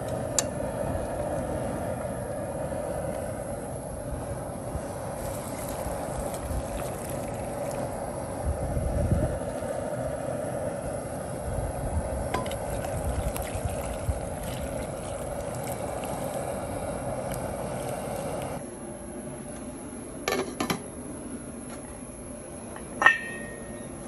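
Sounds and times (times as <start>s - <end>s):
low irregular rumble: 0.0s - 18.6s
background hum: 0.0s - 24.0s
broth splashing into pot: 5.0s - 8.3s, 12.3s - 18.6s.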